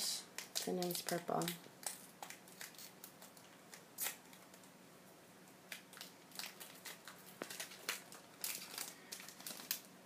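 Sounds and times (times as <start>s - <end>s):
plastic wrapper crinkling: 0.4s - 4.7s, 5.7s - 10.0s.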